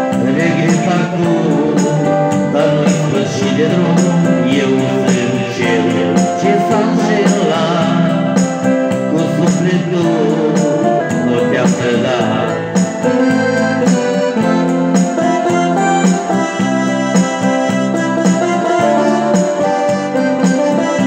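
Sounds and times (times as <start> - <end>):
man singing into microphone: 0.0 - 14.6
electronic keyboard: 0.0 - 21.0
steady beat: 0.0 - 21.0.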